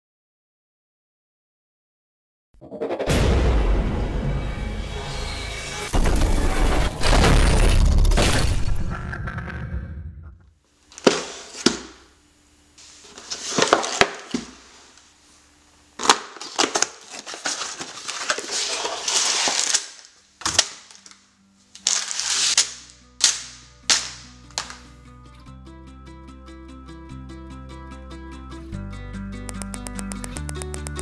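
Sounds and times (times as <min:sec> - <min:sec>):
plastic bags crinkling: 0:16.0 - 0:24.9
cardboard box tearing: 0:16.4 - 0:19.9, 0:21.8 - 0:22.6
backing music: 0:28.1 - 0:31.0.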